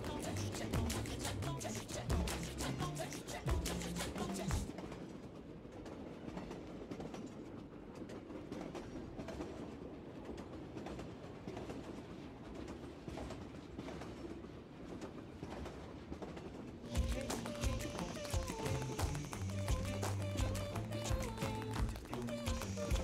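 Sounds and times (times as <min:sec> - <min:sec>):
train rumbling on rails: 0:00.0 - 0:23.0
wheel clicks: 0:16.9 - 0:23.0.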